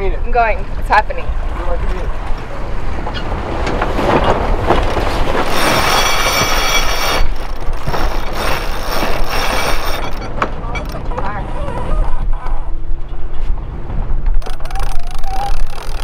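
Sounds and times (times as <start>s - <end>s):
sail flapping: 0.2s - 16.0s
winch ratcheting rapidly: 4.9s - 11.2s, 14.4s - 16.0s.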